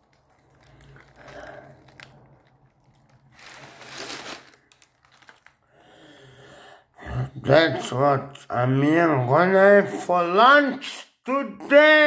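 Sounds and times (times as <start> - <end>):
paper wrapper rustling: 0.0 - 5.7.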